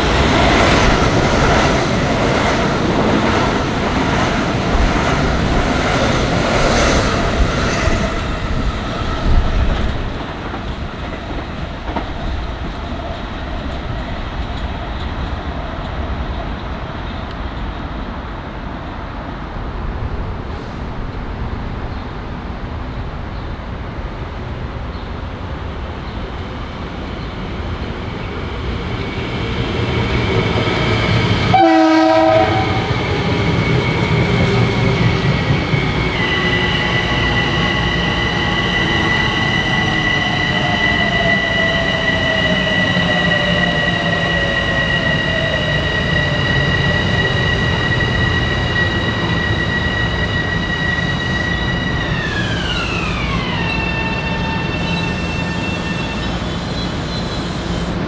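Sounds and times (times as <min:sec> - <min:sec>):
train rumble: 0:00.0 - 0:58.0
high-pitched train whine: 0:25.5 - 0:58.0
train horn blast: 0:31.5 - 0:32.9.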